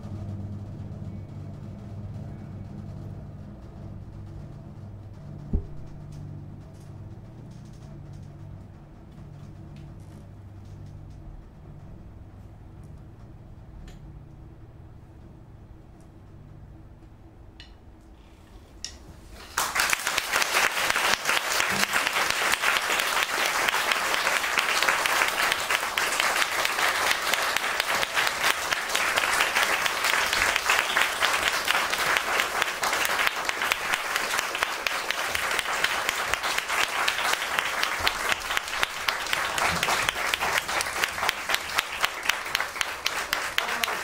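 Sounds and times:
audience applauding: 19.4 - 44.0.

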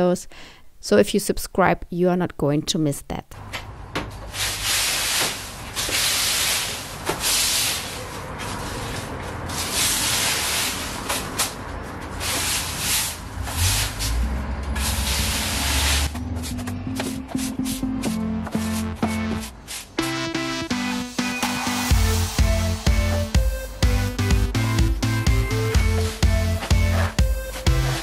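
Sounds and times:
push broom sweeping leaves: 4.2 - 16.6, 17.4 - 20.0
music: 16.0 - 28.0.

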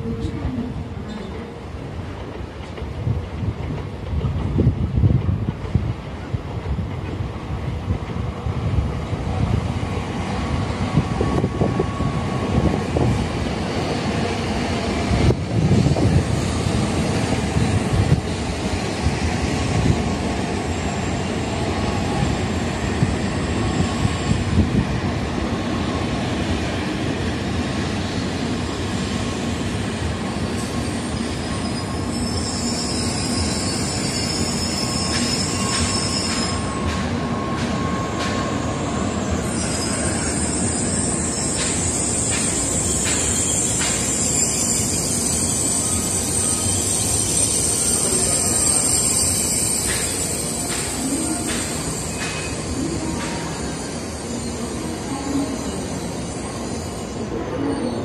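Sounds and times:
train wheels and air rushing: 0.8 - 57.5
high brake squeal: 30.6 - 58.0.

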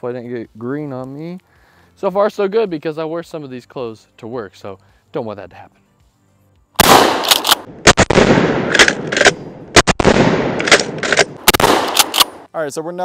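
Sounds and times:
shotgun blasts: 6.8 - 12.5
shotgun pump clacks: 7.2 - 7.7, 8.7 - 9.4, 10.6 - 12.4.

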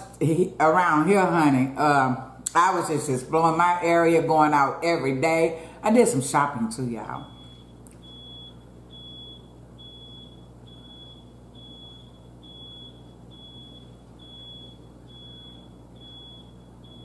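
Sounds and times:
electronic alarm beeping: 7.2 - 17.0.

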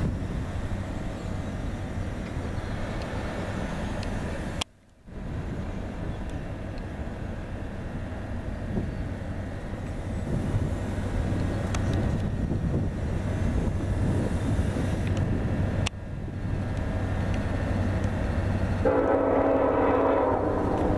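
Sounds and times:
wind on microphone: 0.0 - 1.1, 9.9 - 19.0
distant freight train rumble: 0.0 - 20.9.

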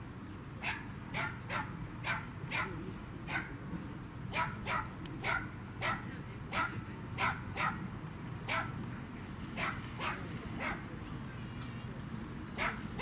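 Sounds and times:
dog yapping: 4.3 - 6.0, 6.6 - 7.8.

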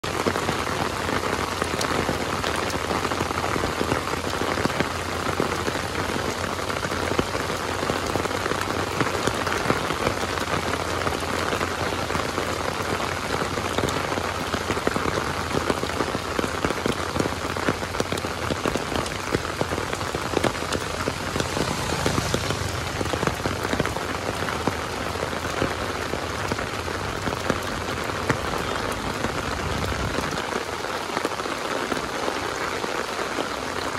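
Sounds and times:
heavy rain on lake water: 0.0 - 33.9.

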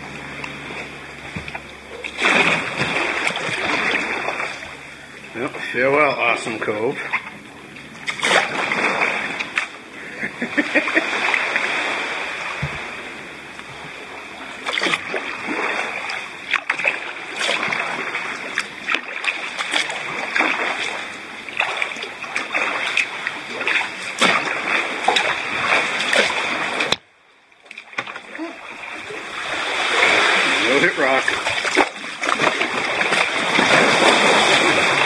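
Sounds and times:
paddle strokes splashing: 0.0 - 35.0
water sloshing around hull: 0.0 - 35.0.

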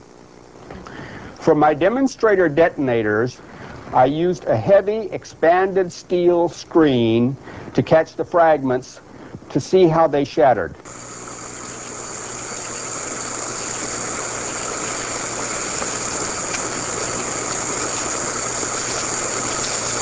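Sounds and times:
low steady hum: 0.0 - 20.0
burning fuse hissing: 10.8 - 20.0.

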